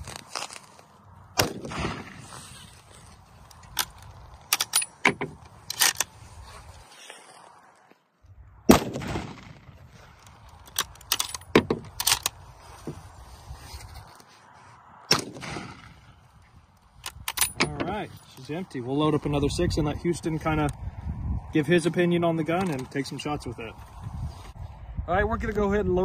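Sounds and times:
rifle shots: 1.4 - 2.2, 8.7 - 9.8, 15.1 - 16.1.

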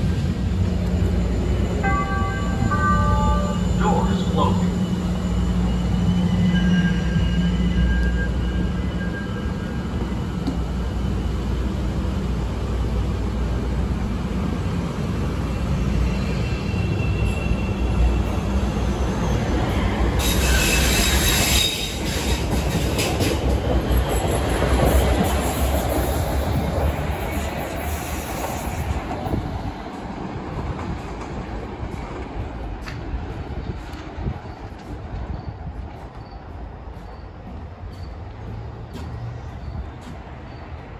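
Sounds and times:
train rumbling past: 0.0 - 40.9
high wheel squeal: 1.0 - 10.2, 15.4 - 19.4, 20.1 - 23.3.

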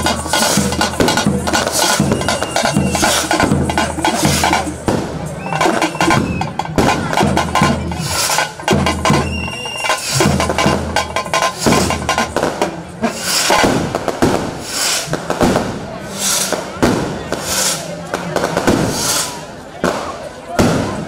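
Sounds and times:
drums beaten fast: 0.0 - 20.0.

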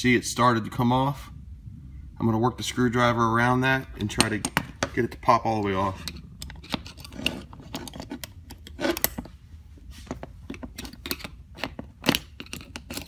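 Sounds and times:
screwdriver scraping metal ring: 5.6 - 9.3, 10.5 - 13.0.

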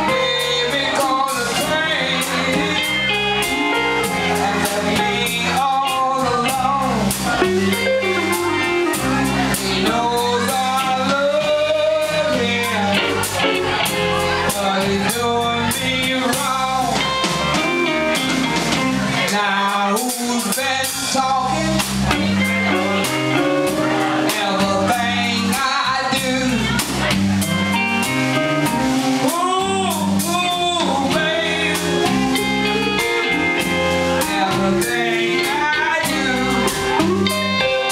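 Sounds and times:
woman singing lead: 0.0 - 17.7, 29.2 - 37.9
drum kit: 0.0 - 37.9
electric bass: 0.0 - 37.9
electric guitars: 0.0 - 37.9.

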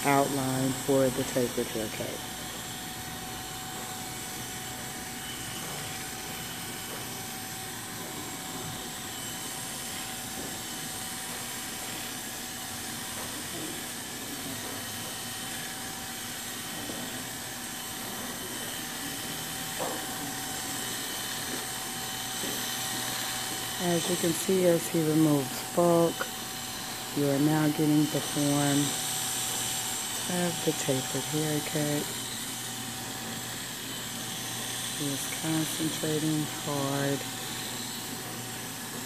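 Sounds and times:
electric hair clippers humming: 0.0 - 39.0.

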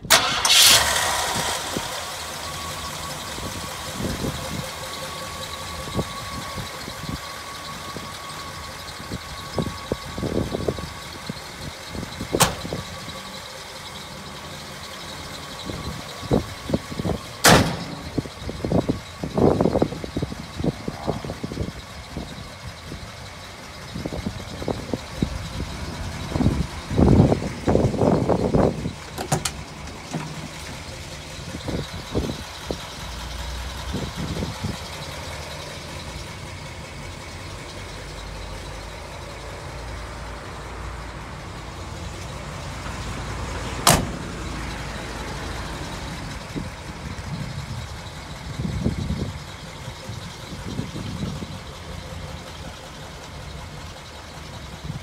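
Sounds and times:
vehicle engine idling: 0.0 - 55.0.

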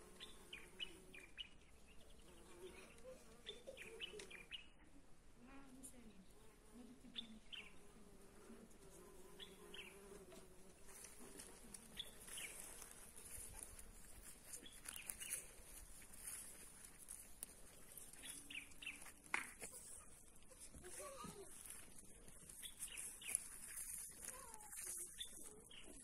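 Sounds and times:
faint bird chirps: 0.2 - 4.9.

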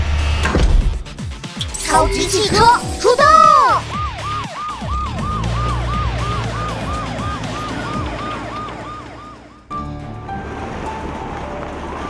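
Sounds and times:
police siren wailing: 1.7 - 9.7.

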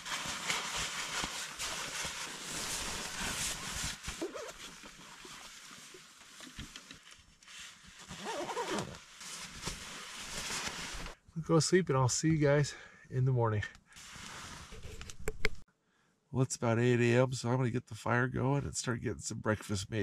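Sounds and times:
fabric rustling: 0.0 - 11.2.

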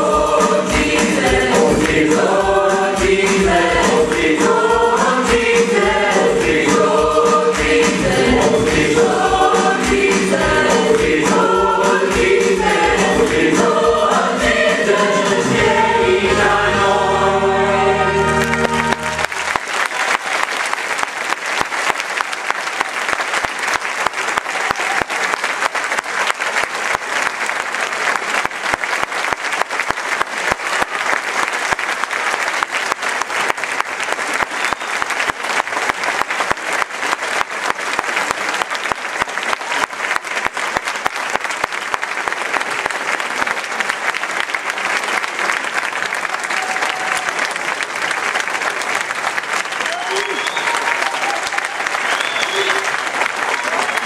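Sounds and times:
cast singing in chorus: 0.0 - 18.6
backing music: 0.0 - 19.6
audience applause: 17.9 - 54.0.

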